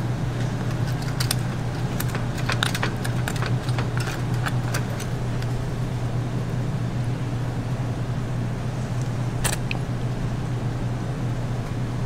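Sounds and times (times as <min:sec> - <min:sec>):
low hum of bakery equipment: 0:00.0 - 0:12.0
utensils clinking on metal: 0:00.6 - 0:05.7.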